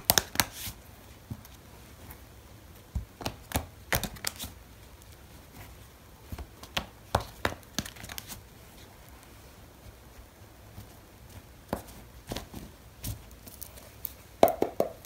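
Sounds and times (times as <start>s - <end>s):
cards being shuffled: 0.0s - 1.6s, 3.2s - 4.6s, 5.6s - 8.5s.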